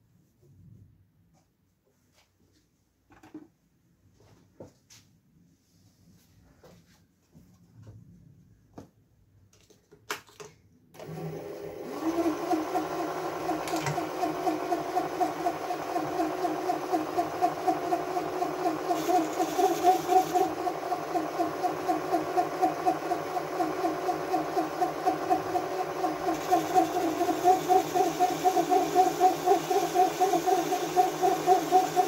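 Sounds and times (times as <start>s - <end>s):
lathe motor humming: 11.0s - 32.0s.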